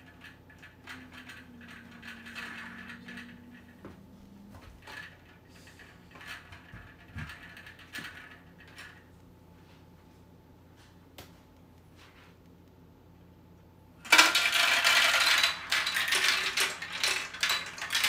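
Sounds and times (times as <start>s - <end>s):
plastic pieces clicking and rattling: 0.0s - 3.9s, 14.0s - 18.0s.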